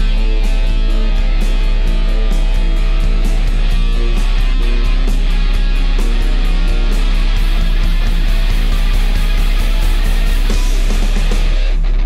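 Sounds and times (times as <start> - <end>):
loud rock music: 0.0 - 12.0.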